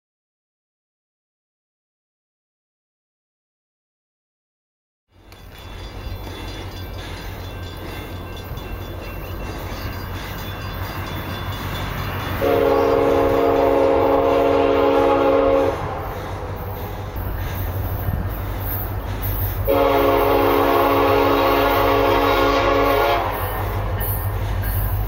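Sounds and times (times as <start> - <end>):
locomotive air horn chord: 12.3 - 17.0, 19.6 - 24.3.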